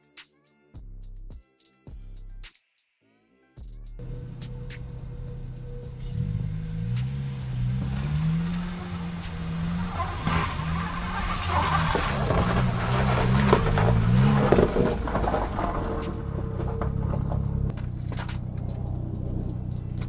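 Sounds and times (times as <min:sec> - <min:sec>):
tyres on snow: 0:04.0 - 0:18.8
car engine revving: 0:04.0 - 0:20.0.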